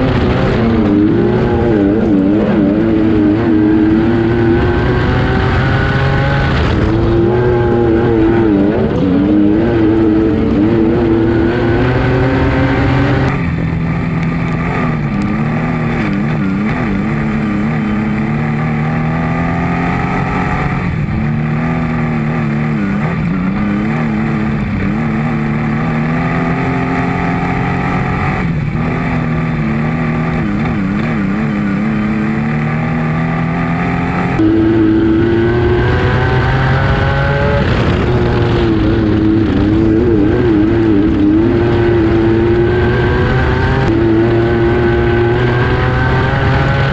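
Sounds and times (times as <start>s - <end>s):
race car engine revving: 0.0s - 46.9s.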